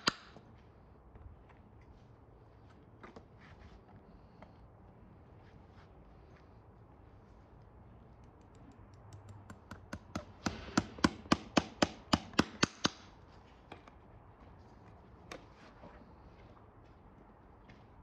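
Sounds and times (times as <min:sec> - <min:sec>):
hammer striking horseshoe nail: 0:09.2 - 0:13.1.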